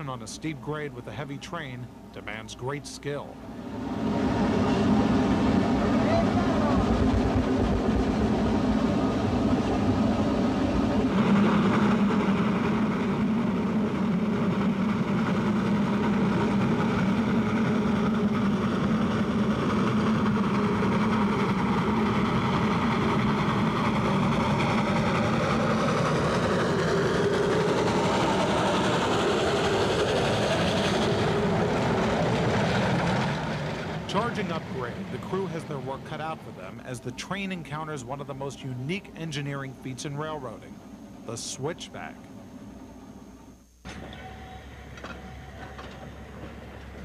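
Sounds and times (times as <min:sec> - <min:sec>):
steam locomotive working hard: 0:00.0 - 0:43.1, 0:43.9 - 0:47.0.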